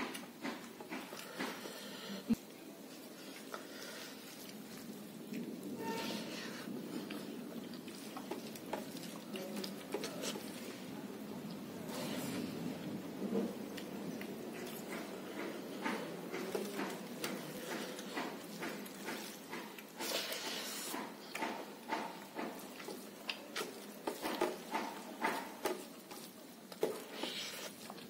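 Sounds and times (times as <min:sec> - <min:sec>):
breathy hiss: 0:01.0 - 0:02.4, 0:03.1 - 0:04.8, 0:05.7 - 0:07.1, 0:20.0 - 0:21.2
fingers working rice on steel plate: 0:14.4 - 0:28.0.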